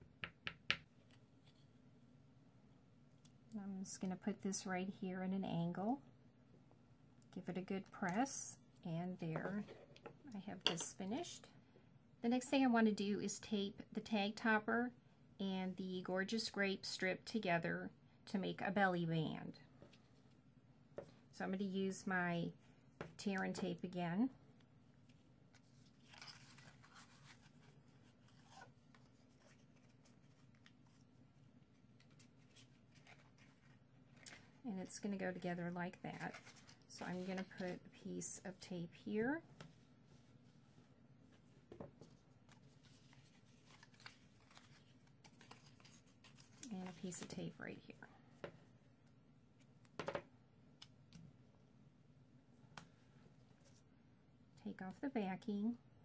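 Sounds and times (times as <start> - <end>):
low room hum: 0.0 - 56.0
tape and card rustling: 25.0 - 31.1, 31.7 - 34.5, 36.1 - 37.9, 42.0 - 47.5.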